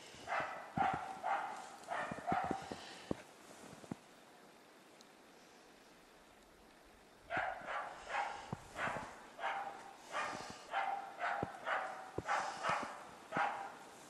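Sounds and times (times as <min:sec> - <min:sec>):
dog barking rapidly: 0:00.3 - 0:02.7, 0:07.3 - 0:13.8.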